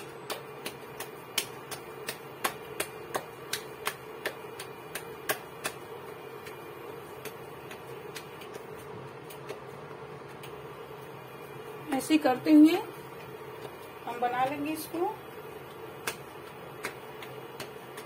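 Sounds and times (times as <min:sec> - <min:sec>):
hands slapping dough: 0:00.0 - 0:11.0, 0:15.2 - 0:18.0
induction cooktop hum: 0:00.0 - 0:18.0.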